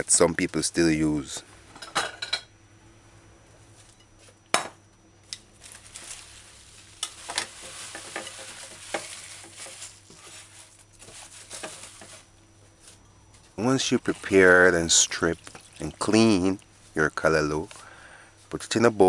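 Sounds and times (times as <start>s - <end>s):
leafy greens rustling: 5.2s - 19.0s.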